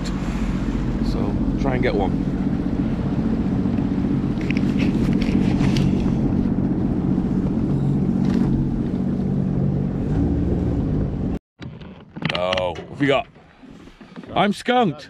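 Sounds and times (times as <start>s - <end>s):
watercraft engine running: 0.0s - 11.4s.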